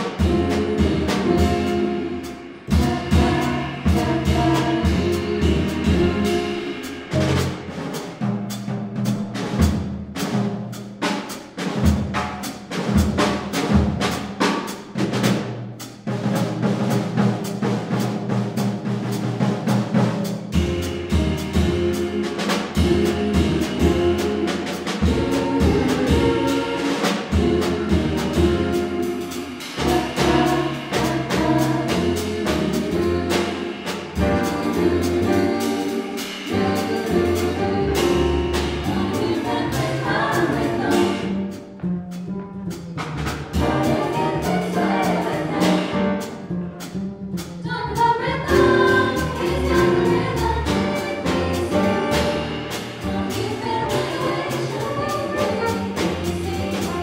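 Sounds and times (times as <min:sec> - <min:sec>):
vocal ensemble singing: 0:00.0 - 0:07.7, 0:20.6 - 0:41.7, 0:43.5 - 0:46.5, 0:47.7 - 0:57.0
upright bass: 0:00.0 - 0:10.4, 0:17.6 - 0:57.0
drum kit with cymbals: 0:00.0 - 0:57.0
piano: 0:00.0 - 0:57.0.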